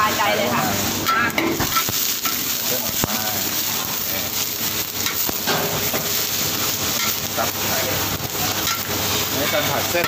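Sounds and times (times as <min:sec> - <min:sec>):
food sizzling in a wok: 0:00.0 - 0:10.0
metal spatula scraping a wok: 0:05.0 - 0:07.3, 0:08.4 - 0:10.0.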